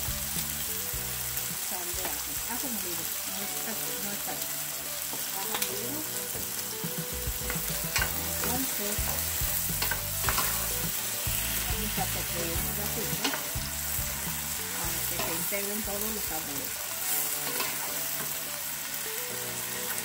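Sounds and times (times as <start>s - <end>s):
vegetables sizzling in oil: 0.0s - 20.0s.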